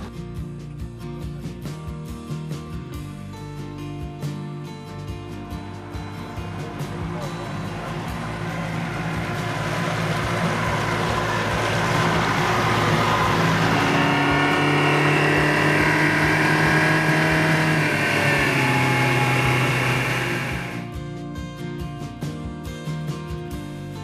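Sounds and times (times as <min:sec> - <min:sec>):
outboard motor running: 0:05.6 - 0:20.9.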